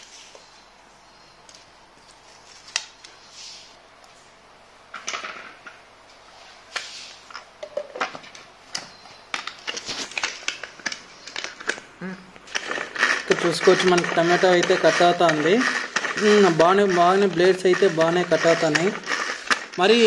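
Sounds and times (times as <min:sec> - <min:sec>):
pull-cord chopper clicking and rasping: 0:12.5 - 0:20.0.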